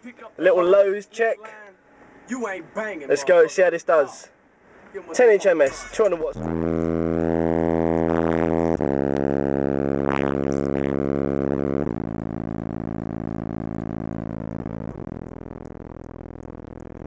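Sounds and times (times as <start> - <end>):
deep bass tones from subwoofer: 5.7 - 17.0.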